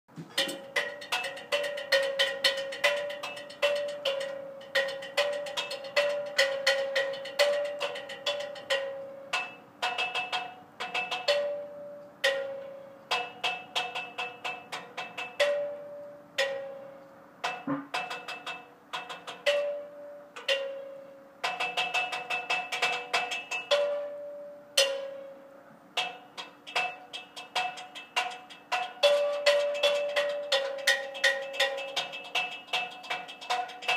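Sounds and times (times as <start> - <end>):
sticks striking metal ladder: 0.1 - 8.8, 17.4 - 19.8.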